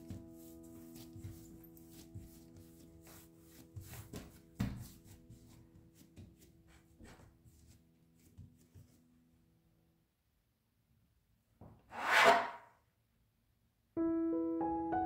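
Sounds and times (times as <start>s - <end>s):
dough thumped and rubbed on wood: 0.0s - 8.9s
soft background music: 0.0s - 9.4s, 14.0s - 15.0s.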